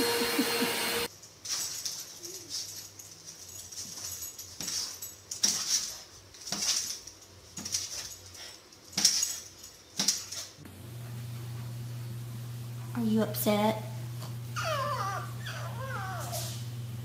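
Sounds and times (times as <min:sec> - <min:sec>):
steady low hum: 0:10.6 - 0:14.6.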